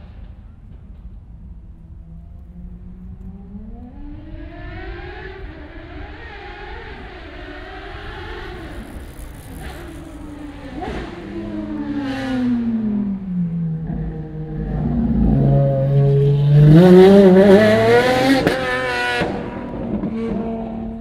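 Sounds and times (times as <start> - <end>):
race car engine at high revs: 2.4 - 21.0.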